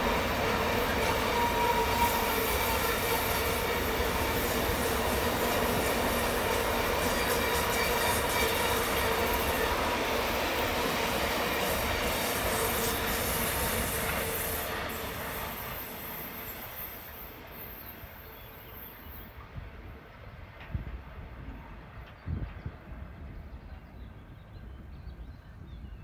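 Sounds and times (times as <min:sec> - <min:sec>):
train wheels squealing: 0:00.1 - 0:19.6.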